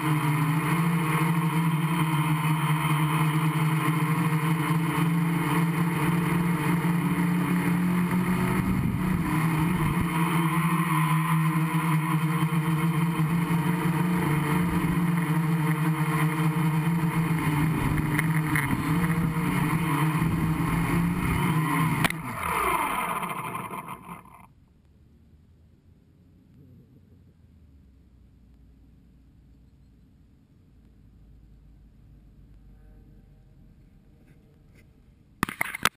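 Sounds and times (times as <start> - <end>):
drone motors humming: 0.0 - 24.6.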